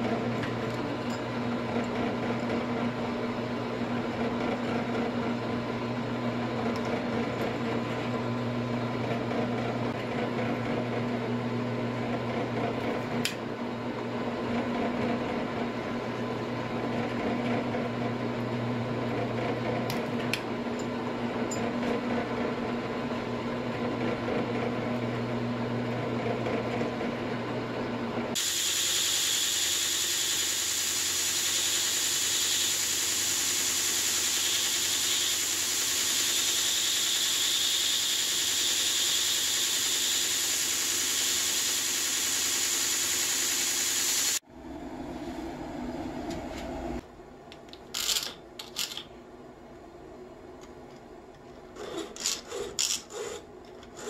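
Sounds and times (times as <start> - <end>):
drill press motor running: 28.3 - 44.4
belt grinder whining: 28.4 - 44.4.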